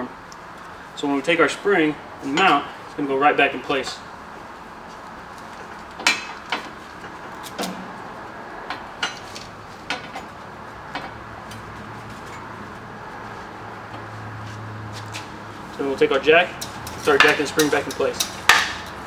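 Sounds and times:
metal knocks and clanks: 8.6s - 11.2s.

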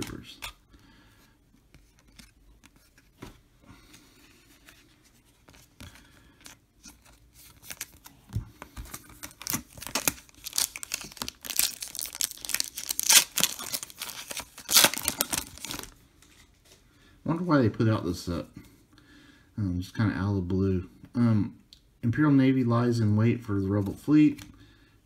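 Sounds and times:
cards tapping and rustling: 5.4s - 15.9s
foil wrapper crinkling and tearing: 9.0s - 16.0s.

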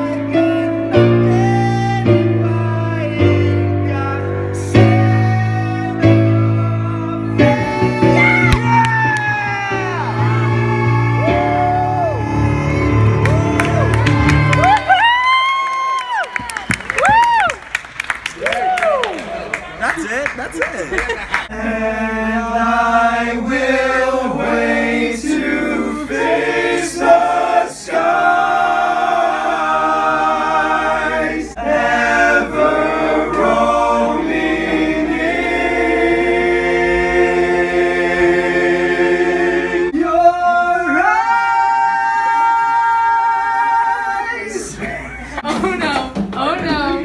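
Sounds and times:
men singing a cappella: 0.0s - 8.5s, 21.5s - 45.4s.

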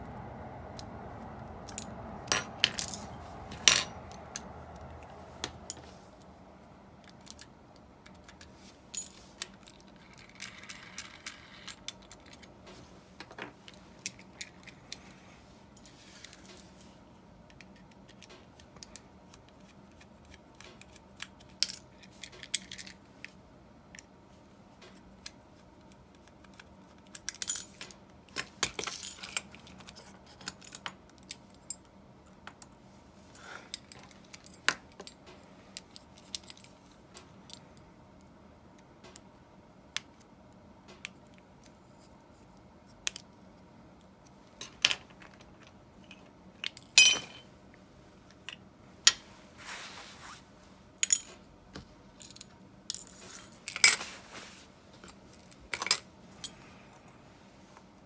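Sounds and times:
faint steady hum: 0.0s - 58.0s
small metal parts clicking and clinking: 1.6s - 5.9s, 7.0s - 12.5s, 20.6s - 24.1s, 26.4s - 32.7s, 35.8s - 36.7s, 51.0s - 51.4s, 52.2s - 54.0s, 55.0s - 56.6s.

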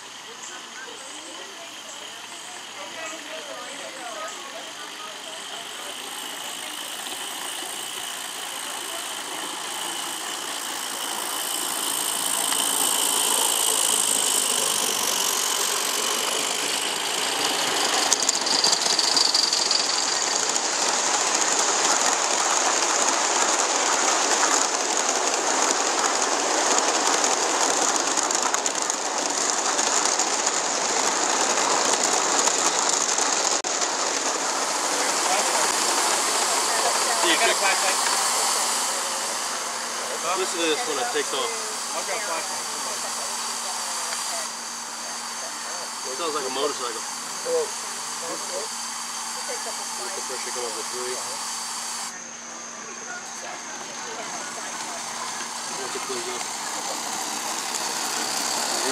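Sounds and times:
steam hissing: 0.0s - 58.9s
wheels running on rails: 0.0s - 58.9s.

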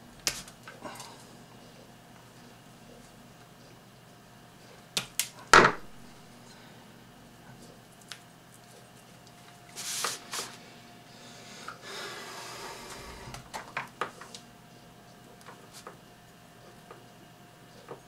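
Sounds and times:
wires rustling and scraping: 8.6s - 10.6s.

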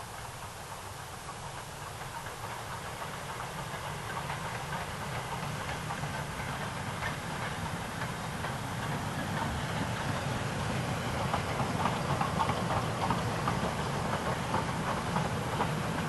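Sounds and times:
steam locomotive hauling train: 0.0s - 16.0s.

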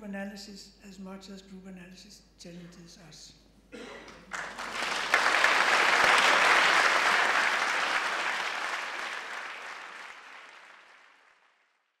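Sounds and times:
audience applauding: 4.3s - 11.7s.

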